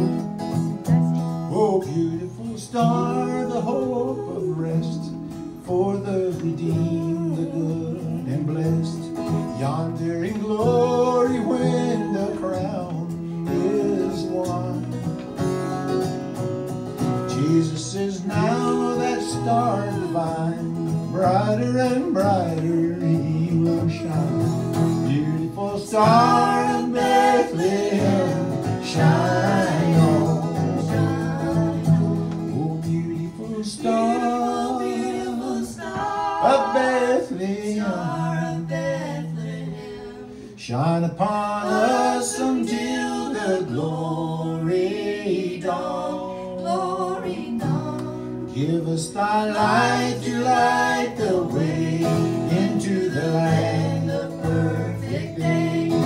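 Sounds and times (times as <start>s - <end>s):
acoustic guitar: 0.0s - 56.0s
voices singing in harmony: 10.5s - 14.7s, 17.3s - 22.8s, 25.1s - 40.5s, 41.2s - 56.0s.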